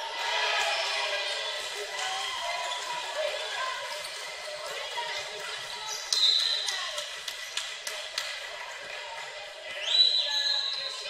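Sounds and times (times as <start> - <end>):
voices in a gym: 0.0 - 11.0.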